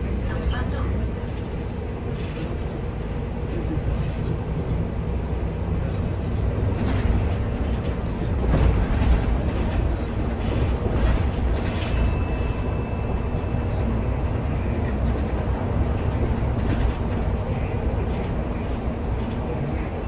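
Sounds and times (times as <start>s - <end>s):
bus engine and road rumble: 0.0s - 20.0s.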